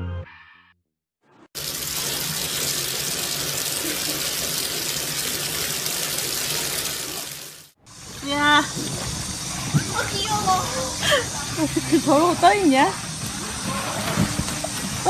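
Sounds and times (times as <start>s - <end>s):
bathtub tap running: 8.5s - 11.2s.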